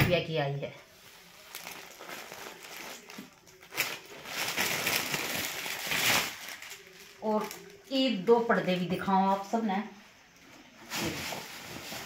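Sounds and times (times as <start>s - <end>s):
plastic packaging crinkling: 1.1s - 8.0s, 10.8s - 12.0s.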